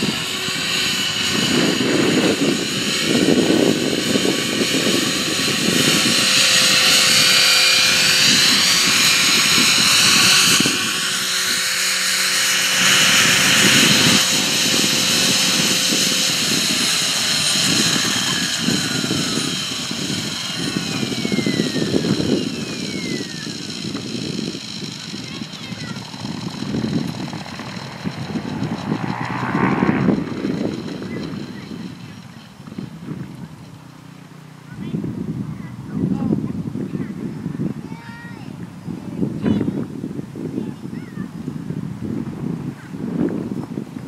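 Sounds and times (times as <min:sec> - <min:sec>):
low gusty rumble: 0:00.0 - 0:44.0
rc helicopter rotor whining: 0:00.0 - 0:44.0.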